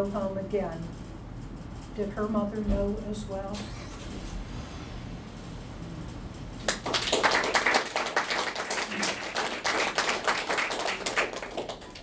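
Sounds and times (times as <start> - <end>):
audience clapping: 6.6 - 12.0.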